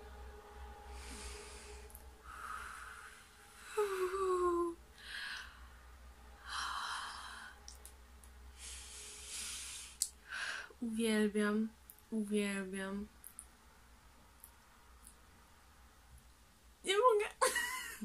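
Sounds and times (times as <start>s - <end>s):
woman breathy sighs: 0.9s - 5.7s.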